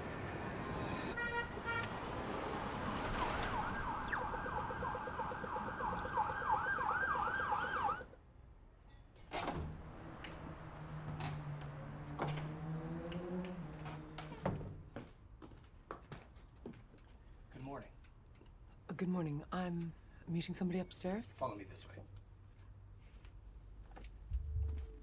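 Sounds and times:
emergency vehicle siren: 0:00.0 - 0:08.2
street traffic: 0:00.0 - 0:21.2.

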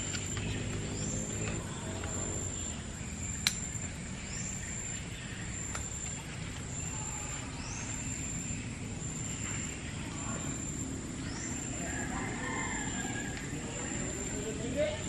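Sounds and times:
constant high whine: 0:00.0 - 0:15.0
sharp click: 0:03.4 - 0:03.7.

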